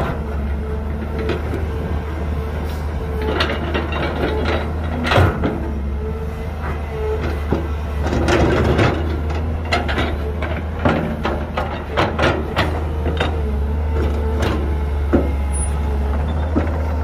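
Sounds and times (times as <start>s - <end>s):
diesel machinery droning: 0.0s - 17.0s
metallic clanks and knocks: 3.2s - 5.8s, 7.2s - 15.4s.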